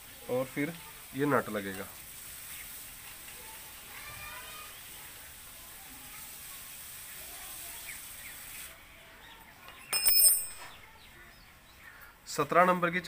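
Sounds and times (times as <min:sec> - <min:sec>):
spanner clinking on metal and concrete: 0:09.7 - 0:10.9.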